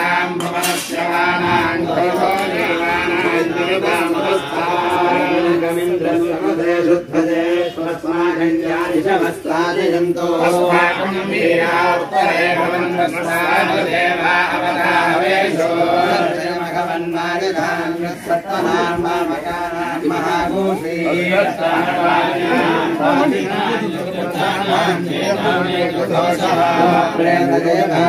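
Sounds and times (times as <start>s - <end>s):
male voices chanting together: 0.0s - 28.0s.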